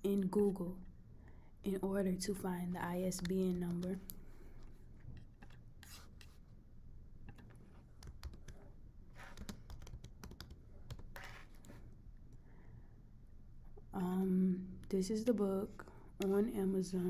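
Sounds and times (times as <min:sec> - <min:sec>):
computer keyboard typing: 0:03.0 - 0:04.2, 0:07.3 - 0:11.6.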